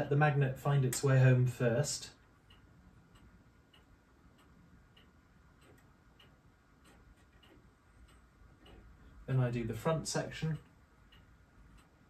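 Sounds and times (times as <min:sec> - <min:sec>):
faint regular ticking: 0:00.0 - 0:12.0.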